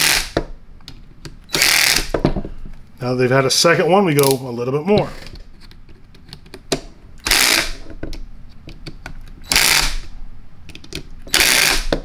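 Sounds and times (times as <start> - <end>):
drill clutch ratcheting: 1.5 - 2.1, 7.2 - 7.8, 9.4 - 10.0, 11.3 - 12.0.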